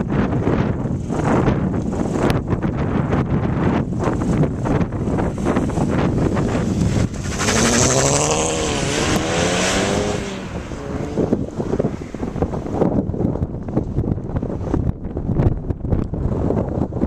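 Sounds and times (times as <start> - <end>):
wind rumble on microphone: 0.0 - 17.0
car engine revving: 5.0 - 12.8.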